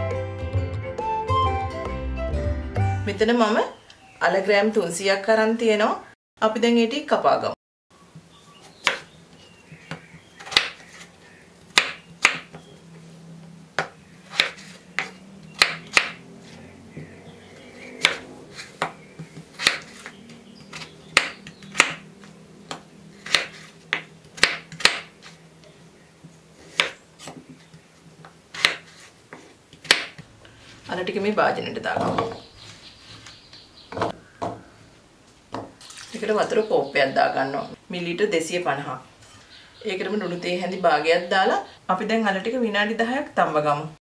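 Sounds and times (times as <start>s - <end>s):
knife chopping on wooden board: 8.8s - 9.1s, 9.9s - 11.0s, 11.7s - 12.7s, 13.8s - 17.1s, 17.9s - 22.0s, 22.7s - 25.1s, 26.7s - 27.7s, 28.5s - 30.2s.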